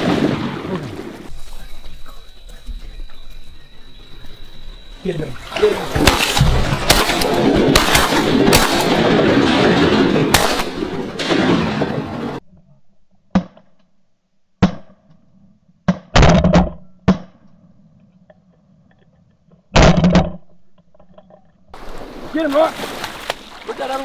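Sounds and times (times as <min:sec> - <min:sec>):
shotgun blasts: 0:05.9 - 0:12.4.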